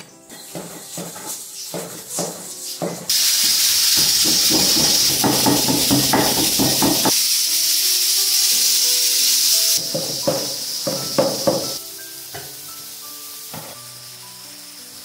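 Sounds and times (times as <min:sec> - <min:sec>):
food sizzling in a pan: 0:00.3 - 0:15.0
background music: 0:08.8 - 0:15.0.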